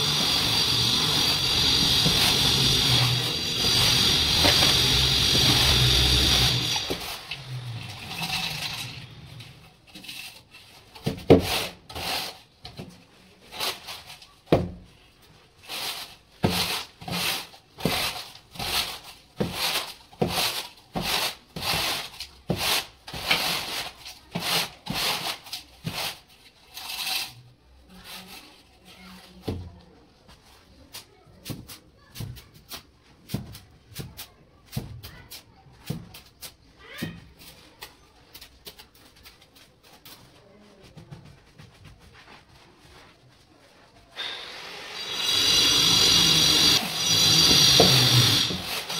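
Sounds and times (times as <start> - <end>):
straightedge scraping mortar: 0.0 - 12.6, 15.6 - 28.8, 44.5 - 48.9.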